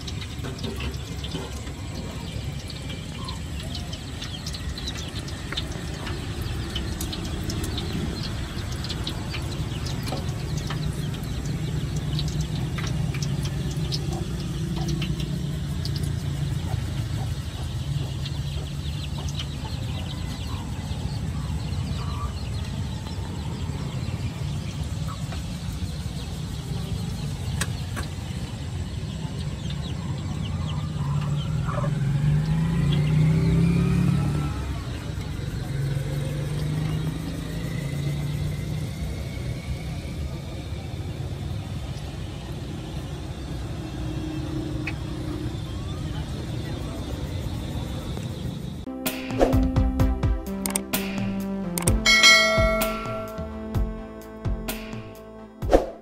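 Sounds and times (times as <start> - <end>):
food deep-frying in oil: 0.0 - 48.2
pops and crackles of oil: 3.3 - 16.4
low hum: 48.9 - 56.0.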